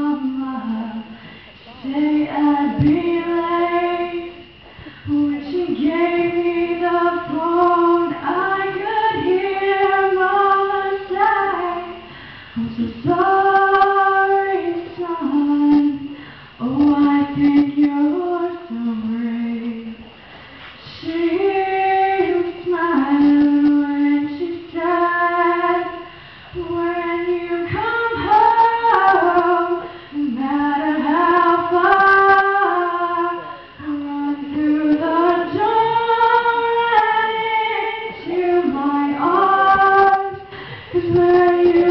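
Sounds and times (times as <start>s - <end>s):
woman singing into microphone: 0.0s - 20.2s, 20.8s - 41.9s
singer breathing: 1.1s - 1.7s, 4.6s - 5.1s, 12.0s - 12.6s, 16.1s - 16.6s, 20.1s - 20.8s, 26.0s - 26.6s, 29.8s - 30.2s, 40.4s - 41.0s.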